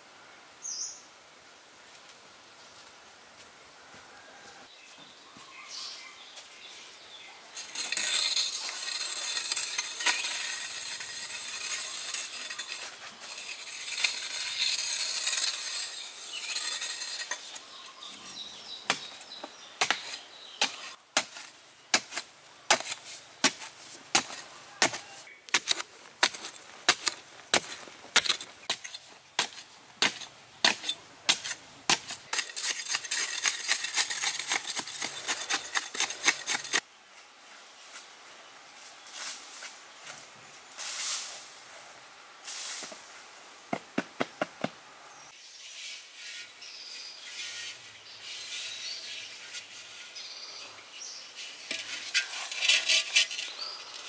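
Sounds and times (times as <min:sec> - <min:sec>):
metal tool chopping into soil: 0:18.9 - 0:36.8.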